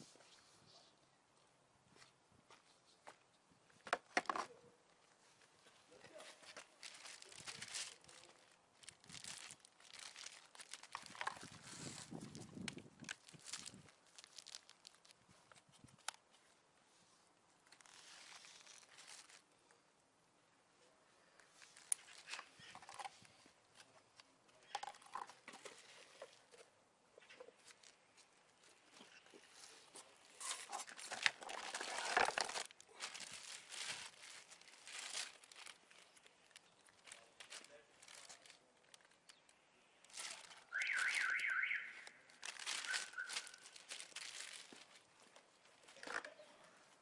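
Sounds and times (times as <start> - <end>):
plastic packaging crinkling: 6.4 - 16.2, 17.7 - 19.4, 30.2 - 45.1.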